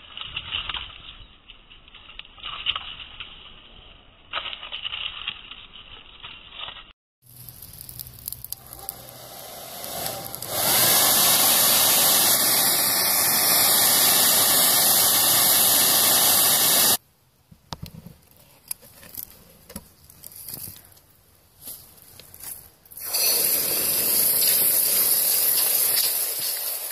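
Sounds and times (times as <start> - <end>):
power tool running: 8.6 - 17.0.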